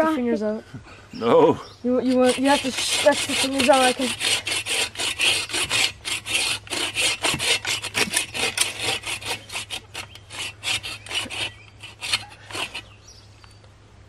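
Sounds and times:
bow saw rasping through log: 0:02.0 - 0:13.0.

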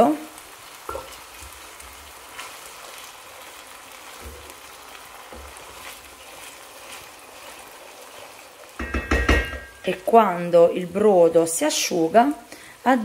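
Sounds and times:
rice sizzling in a pan: 0:00.0 - 0:13.0
wooden spoon scraping a pan: 0:04.0 - 0:10.2.

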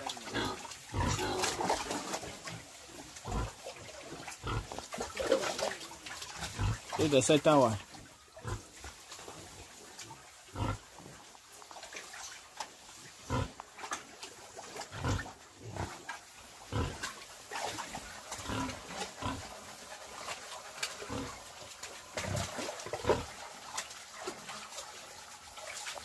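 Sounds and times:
pigs grunting: 0:00.0 - 0:07.8, 0:10.4 - 0:11.3, 0:13.2 - 0:23.4.

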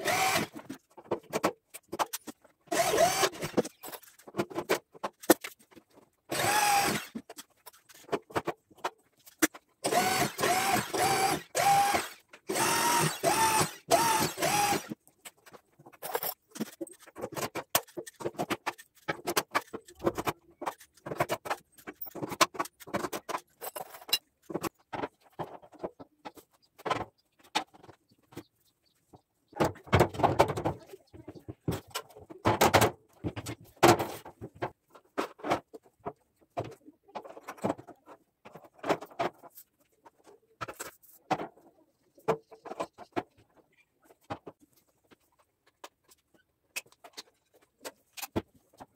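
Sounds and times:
electric drill running: 0:00.0 - 0:00.6, 0:02.7 - 0:03.4, 0:06.3 - 0:07.1, 0:09.8 - 0:15.0.

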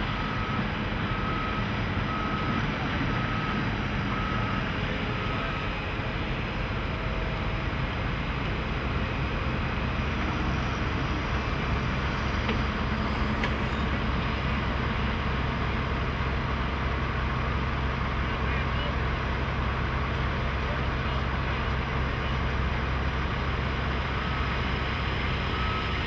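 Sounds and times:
diesel machinery engine rumble: 0:00.0 - 0:26.0.

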